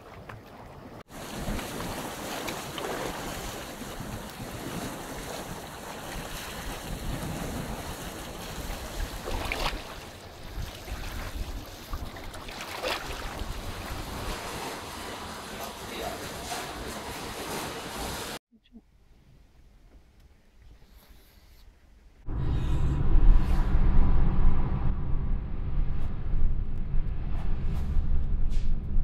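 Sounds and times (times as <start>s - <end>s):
sea waves washing on rocks: 1.0s - 18.4s
wind buffeting microphone: 1.2s - 15.3s.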